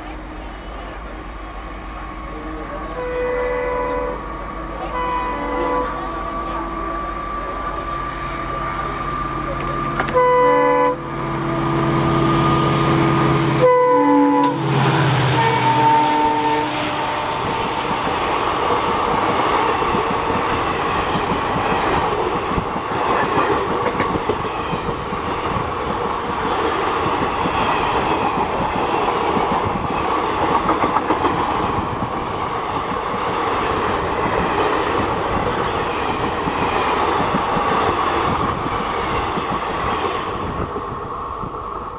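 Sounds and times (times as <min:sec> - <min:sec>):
train rushing past: 0:00.0 - 0:41.9
clickety-clack over rail joints: 0:09.5 - 0:10.2, 0:17.4 - 0:40.9.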